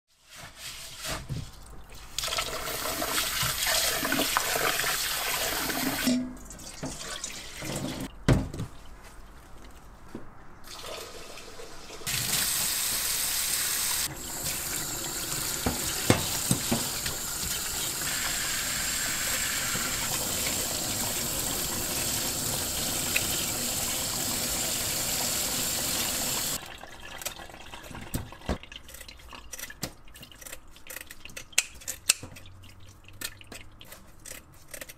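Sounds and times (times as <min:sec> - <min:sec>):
pot and utensils knocking: 0:15.6 - 0:17.0
tap running into steel sink: 0:15.6 - 0:17.6.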